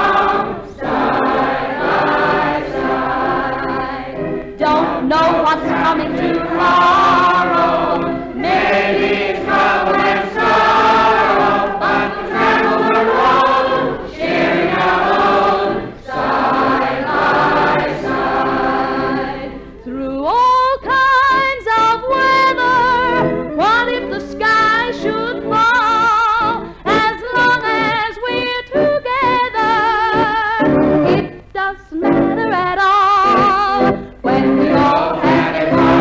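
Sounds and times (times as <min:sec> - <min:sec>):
group singing in close harmony: 0:00.0 - 0:19.9, 0:34.2 - 0:36.0.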